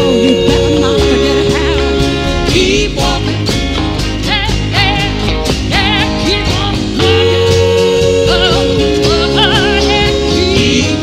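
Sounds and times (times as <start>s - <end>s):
woman singing with vibrato: 0.0s - 3.4s, 5.8s - 11.0s
acoustic guitars: 0.0s - 11.0s
upright bass: 0.0s - 11.0s.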